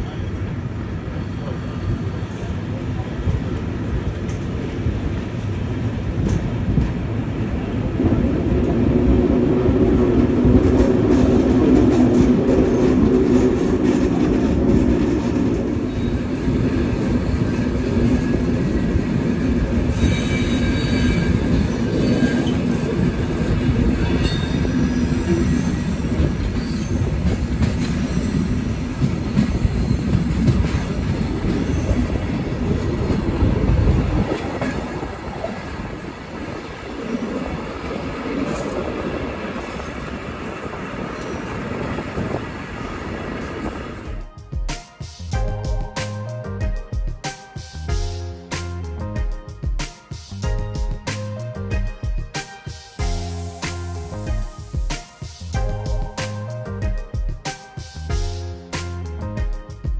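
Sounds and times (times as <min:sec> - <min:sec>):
train wheel squeal: 0:00.0 - 0:02.8, 0:10.7 - 0:37.3, 0:38.3 - 0:44.2
train wheels rumbling on track: 0:00.0 - 0:59.9.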